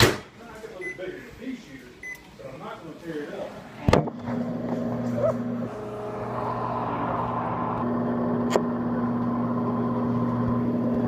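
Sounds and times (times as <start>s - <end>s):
microwave oven humming: 4.2s - 11.0s.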